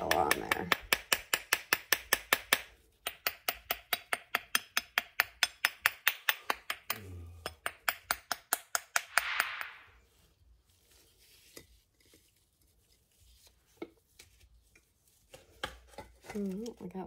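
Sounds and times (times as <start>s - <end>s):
sharp taps on bath bomb mold: 0.0s - 9.8s, 13.7s - 17.0s.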